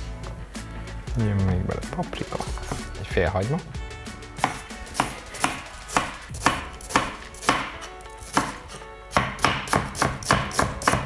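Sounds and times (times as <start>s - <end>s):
knife slicing onion: 4.4s - 11.0s.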